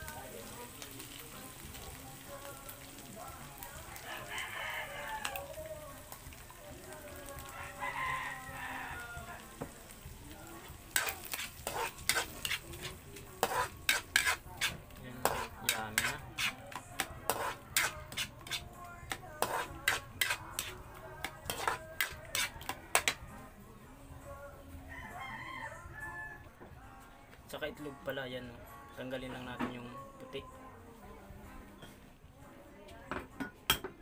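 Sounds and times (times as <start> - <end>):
spatula scraping a wok: 10.7 - 23.2.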